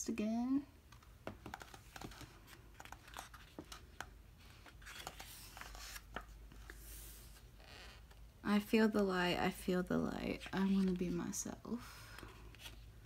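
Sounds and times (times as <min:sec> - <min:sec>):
paper pages rustling: 0:01.0 - 0:08.0.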